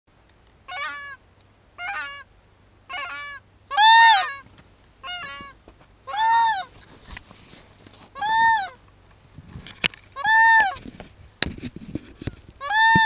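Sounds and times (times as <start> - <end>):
goose honking: 0.7 - 1.2, 1.8 - 2.3, 2.9 - 4.4, 5.0 - 6.7.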